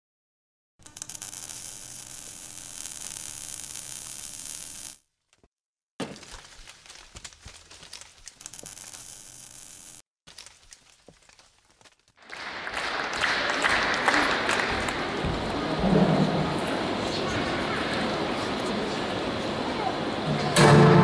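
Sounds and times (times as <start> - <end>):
hissing crackling noise: 0.8 - 5.0, 8.4 - 10.0
irregular crackles and clicks: 0.8 - 5.5, 6.6 - 12.2.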